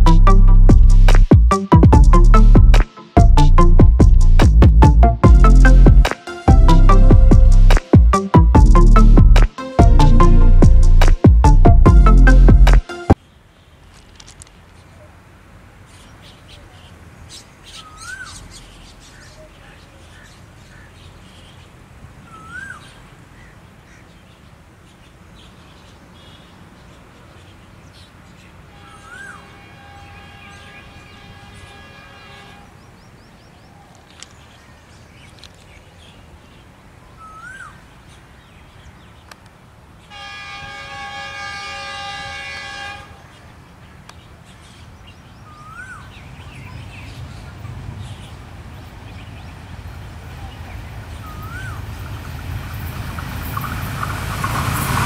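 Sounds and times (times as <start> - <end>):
bird rising call: 22.2 - 24.1, 28.8 - 29.5, 37.2 - 37.8, 45.4 - 46.1, 51.2 - 51.9
locomotive air horn blasts: 28.7 - 32.8, 40.1 - 43.3
low train rumble: 40.1 - 43.9, 46.2 - 55.0.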